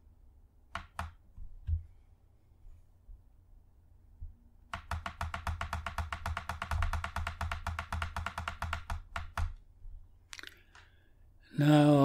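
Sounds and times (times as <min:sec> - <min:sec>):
computer mouse clicking: 0:04.7 - 0:09.6.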